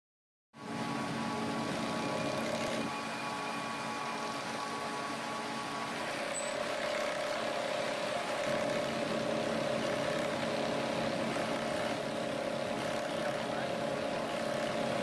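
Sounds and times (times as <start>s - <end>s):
sewing machine stitching: 1.7s - 2.9s, 6.0s - 15.0s.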